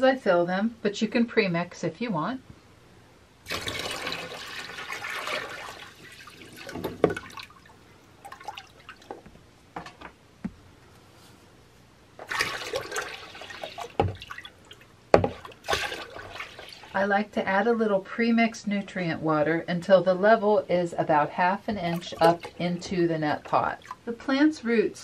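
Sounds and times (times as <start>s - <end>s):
water pouring into plastic tub: 3.5s - 9.2s, 12.2s - 17.0s, 21.8s - 22.8s.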